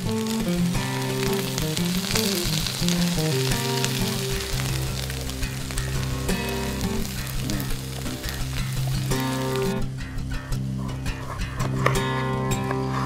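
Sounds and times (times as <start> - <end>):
food sizzling in a pan: 0.0 - 10.0
background music: 0.0 - 13.0.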